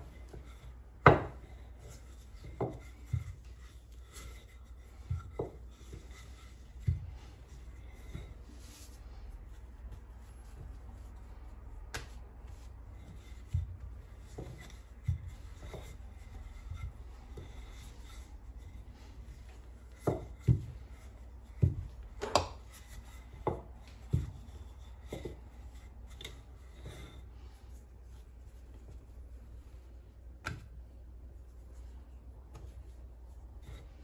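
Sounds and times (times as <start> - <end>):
hands rubbing dough: 0.0 - 34.0
soft dough thuds: 0.0 - 34.0.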